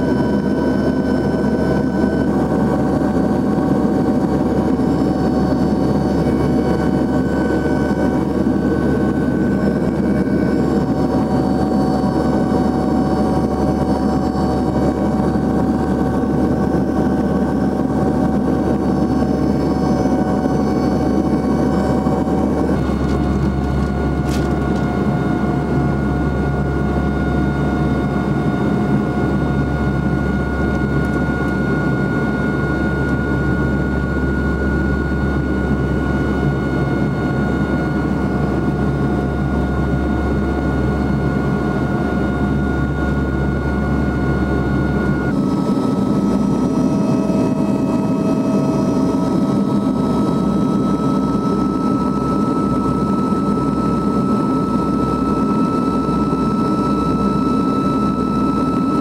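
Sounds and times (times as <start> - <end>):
high steady whining tones: 0.0 - 59.0
turboprop cabin drone: 0.0 - 59.0.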